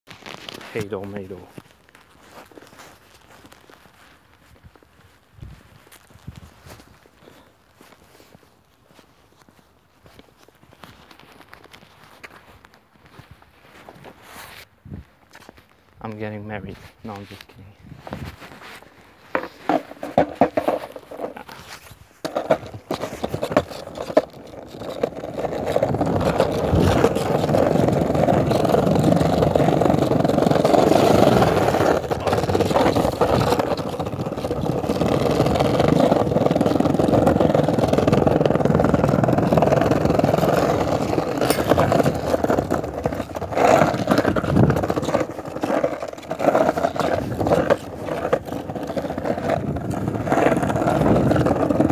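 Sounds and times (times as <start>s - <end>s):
skateboard wheels rolling on pavement: 0.1s - 17.4s, 18.0s - 51.9s.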